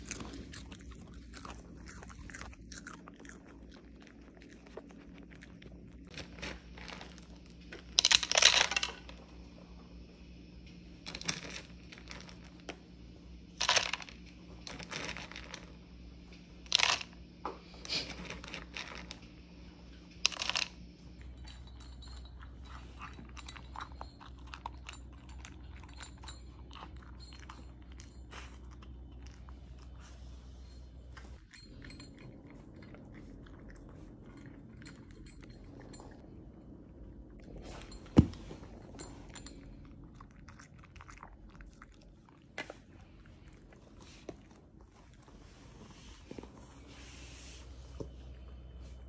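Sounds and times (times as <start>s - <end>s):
dogs crunching dry kibble: 0.0s - 9.2s, 13.6s - 15.8s, 16.7s - 17.1s, 17.9s - 19.3s, 20.2s - 20.7s, 21.3s - 30.3s, 38.9s - 46.7s
dry kibble clattering into cup: 6.1s - 9.2s, 20.2s - 20.8s.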